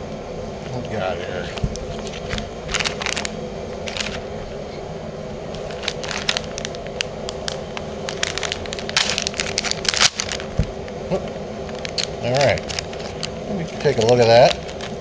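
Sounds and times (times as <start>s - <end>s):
steady low hum: 0.0s - 15.0s
foil packets crinkling: 1.4s - 4.3s, 5.5s - 10.9s, 11.6s - 15.0s
knife slitting foil: 5.6s - 10.6s, 11.8s - 15.0s.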